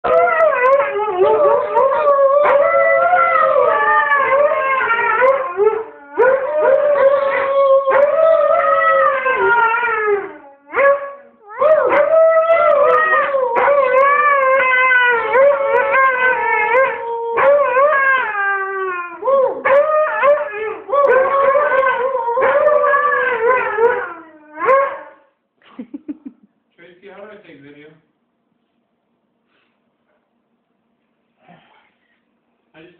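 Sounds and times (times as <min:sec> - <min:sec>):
husky howling: 0:00.0 - 0:25.2
man howling: 0:00.1 - 0:10.4, 0:11.5 - 0:20.4.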